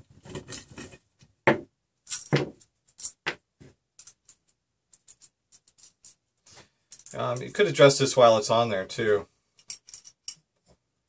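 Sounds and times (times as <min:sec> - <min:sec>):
metal parts knocking on table: 0:00.3 - 0:03.4.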